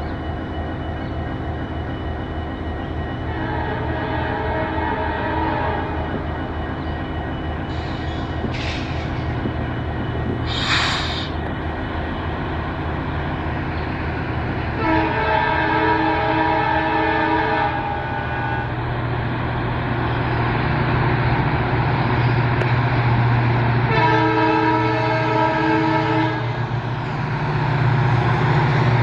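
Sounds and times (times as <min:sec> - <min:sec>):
diesel locomotive engine drone: 0:00.0 - 0:29.0
multi-tone air horn: 0:14.8 - 0:18.7, 0:23.9 - 0:26.5.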